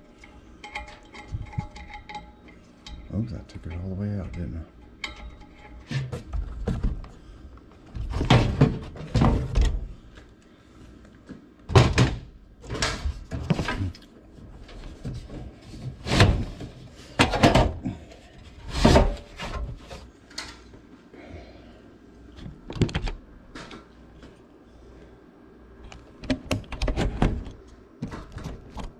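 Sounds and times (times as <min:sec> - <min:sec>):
sheet metal thunks and clunks: 0:08.0 - 0:09.9.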